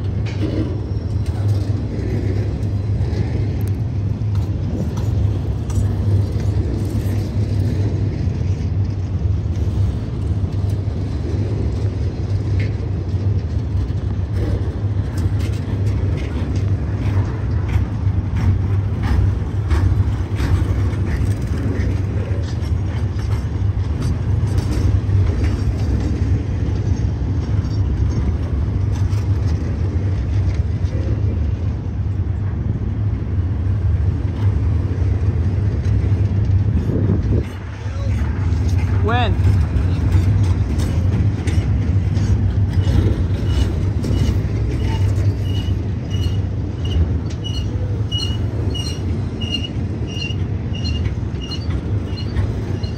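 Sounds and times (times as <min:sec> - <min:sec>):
rail clicks: 0:00.0 - 0:52.9
train wheels rumbling on track: 0:00.0 - 0:52.9
wheel squeals: 0:39.9 - 0:52.9.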